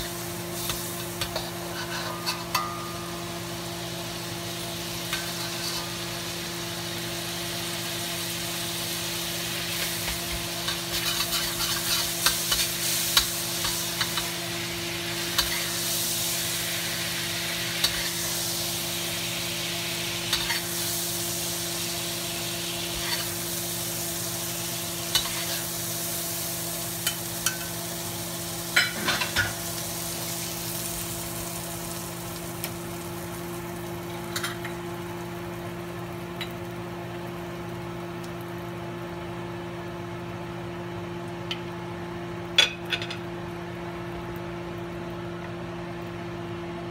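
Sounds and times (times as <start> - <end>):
liquid sizzling in a hot wok: 0.0 - 45.2
spatula scraping a pan: 0.6 - 2.7, 5.1 - 6.0, 9.9 - 14.3, 22.9 - 23.4.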